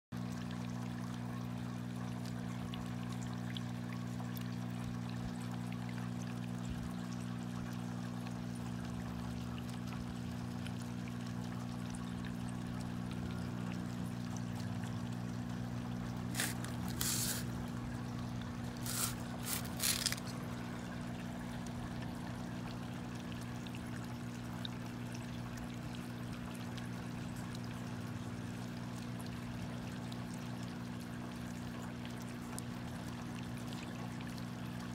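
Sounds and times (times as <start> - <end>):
aquarium equipment hum: 0.2 - 34.9
water trickling and bubbling: 0.2 - 34.9
short bursts of noise: 16.3 - 17.6, 18.7 - 20.4.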